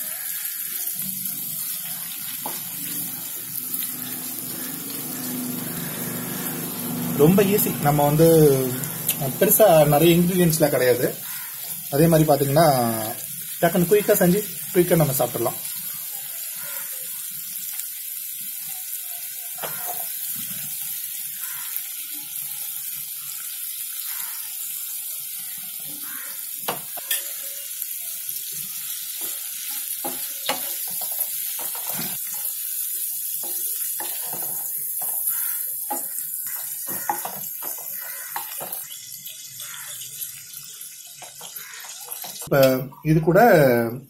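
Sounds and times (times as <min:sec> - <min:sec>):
shrimp sizzling in a pan: 0:00.0 - 0:42.8.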